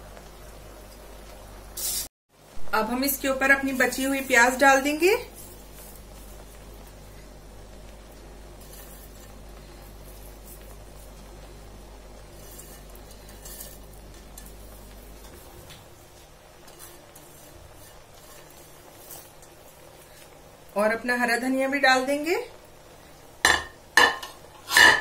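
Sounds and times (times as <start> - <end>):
steady low hum: 2.4 - 24.6
clinks and rustles of onions: 24.0 - 25.0.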